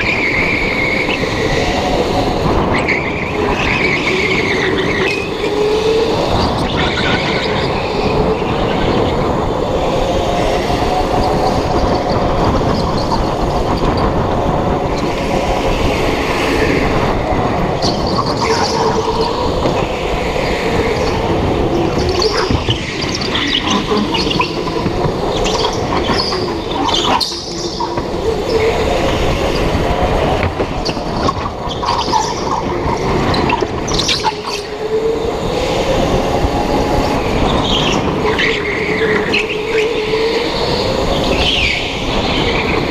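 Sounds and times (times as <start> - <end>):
go-kart engine: 0.0 - 42.9
tyre and wind noise: 0.0 - 42.9
tyre squeals: 20.4 - 28.8.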